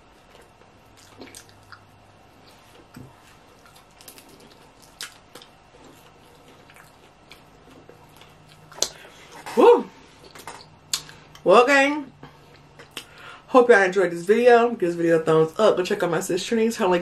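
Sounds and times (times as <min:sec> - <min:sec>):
chewing and wet mouth sounds: 0:00.0 - 0:11.4, 0:12.4 - 0:13.2
small mouth clicks and smacks: 0:00.4 - 0:09.0, 0:10.2 - 0:11.4, 0:12.5 - 0:13.2.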